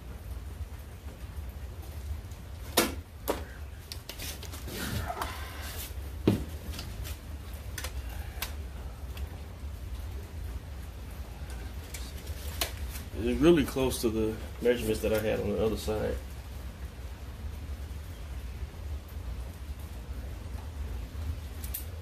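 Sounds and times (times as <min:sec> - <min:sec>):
scraping rustle: 0:03.8 - 0:07.6.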